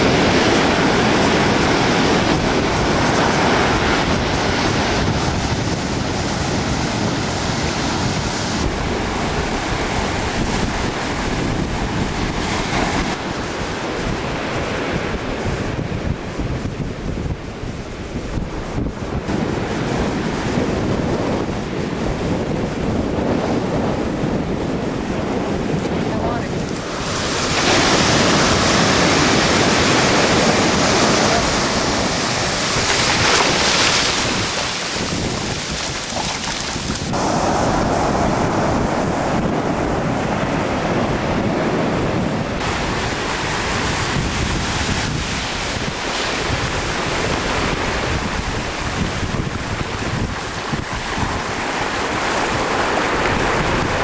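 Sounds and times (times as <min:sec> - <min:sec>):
wind buffeting microphone: 0:00.0 - 0:54.0
surf breaking in shallows: 0:25.0 - 0:54.0.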